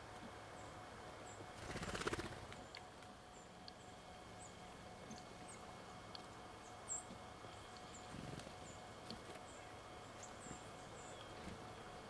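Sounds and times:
faint outdoor hiss: 0:00.0 - 0:12.0
small birds chipping: 0:00.0 - 0:12.0
whirr of bird wings: 0:01.4 - 0:03.0, 0:07.8 - 0:09.6.

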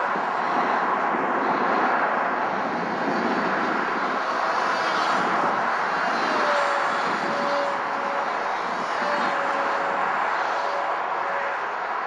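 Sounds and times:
model airplane motor whirring: 0:02.5 - 0:12.0.

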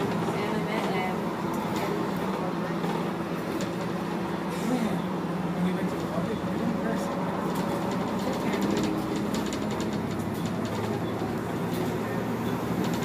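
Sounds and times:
bus diesel engine droning: 0:00.0 - 0:13.0
road and wind noise: 0:00.0 - 0:13.0.

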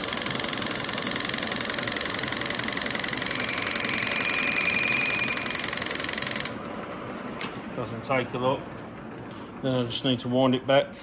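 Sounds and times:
milling machine mechanical clatter: 0:00.0 - 0:07.6
thin high whine: 0:03.1 - 0:06.5.

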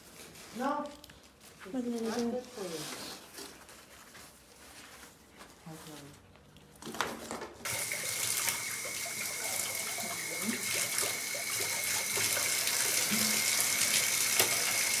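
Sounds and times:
shower water running into bathtub: 0:07.7 - 0:15.0.

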